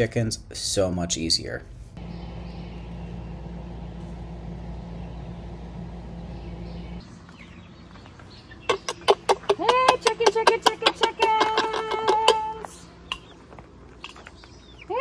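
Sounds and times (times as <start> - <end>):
low hum: 1.9 - 8.5
bird chirp: 2.0 - 15.0.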